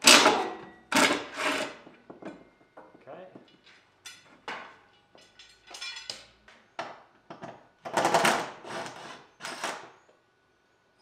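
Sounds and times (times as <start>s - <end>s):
metal parts and tools clanking: 3.5s - 6.4s.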